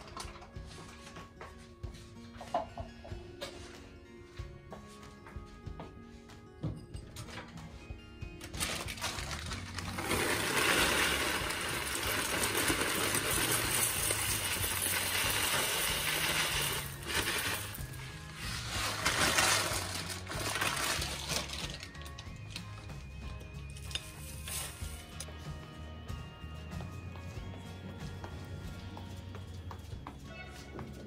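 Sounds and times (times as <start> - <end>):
background music: 0.0 - 31.0
cereal flakes pouring into bowl: 8.9 - 21.9, 24.0 - 25.1.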